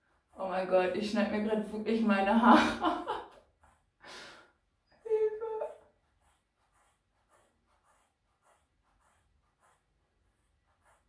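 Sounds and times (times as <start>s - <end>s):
short breath: 4.0s - 4.5s
woman humming: 5.1s - 5.8s.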